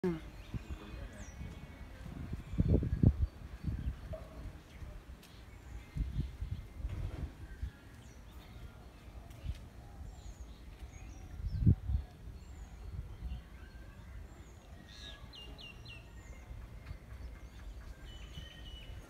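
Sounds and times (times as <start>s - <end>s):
small birds chirping: 0.0s - 19.0s
low rumble on microphone: 5.7s - 8.7s.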